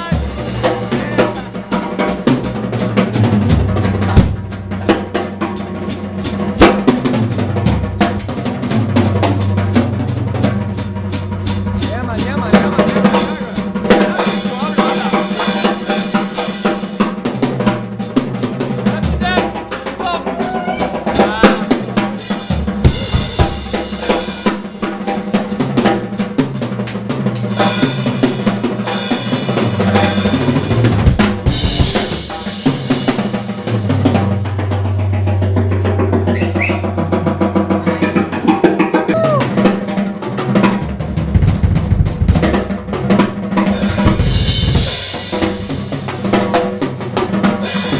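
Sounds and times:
drum kit played hard: 0.0s - 47.9s
stepping bass line: 6.9s - 14.8s, 19.0s - 24.0s, 40.9s - 42.8s, 43.6s - 46.4s.

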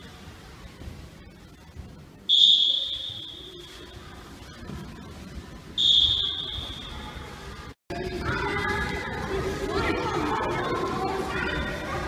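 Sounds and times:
whistle blasts: 2.3s - 3.7s, 5.8s - 7.1s.

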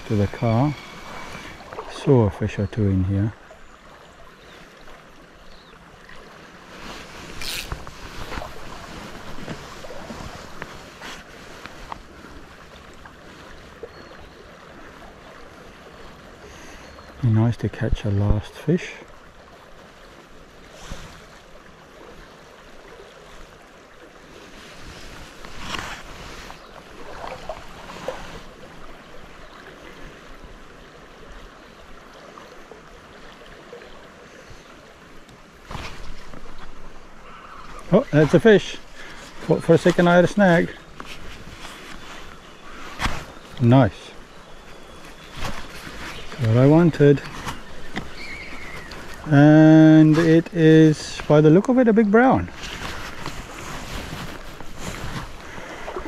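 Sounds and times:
rustling of fly line: 0.0s - 2.1s, 4.5s - 16.8s, 19.4s - 51.4s, 52.4s - 56.0s
stream flowing and rippling: 0.0s - 56.0s
fly rod lifted rustling: 6.7s - 12.1s, 24.7s - 28.5s, 40.9s - 43.6s, 44.7s - 49.3s.

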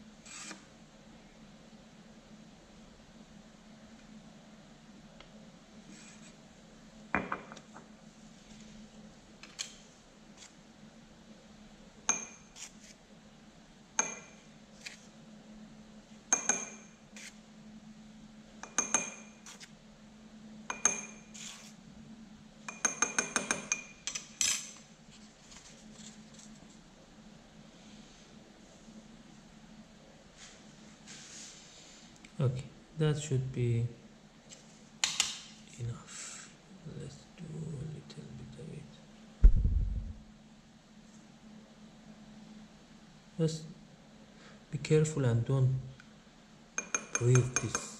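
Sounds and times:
glass clinking: 12.1s - 12.5s.

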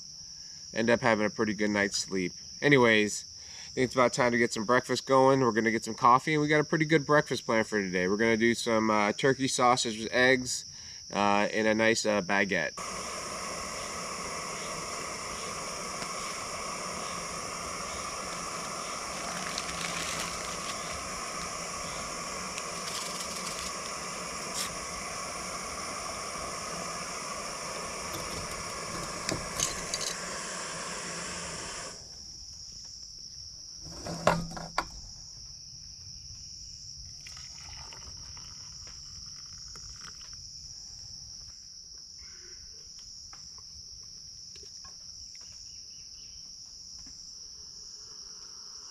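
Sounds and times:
crickets chirring: 0.0s - 48.9s
gas stove burner hissing: 12.8s - 32.3s
handling clicks and clatter: 28.1s - 30.2s.

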